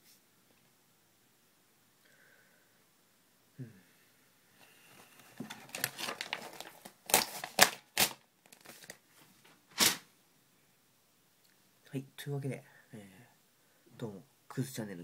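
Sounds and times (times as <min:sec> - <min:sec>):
paper crumpling: 0:05.2 - 0:09.0, 0:09.7 - 0:10.0
paper ripping sharply: 0:05.6 - 0:09.0, 0:09.7 - 0:10.1.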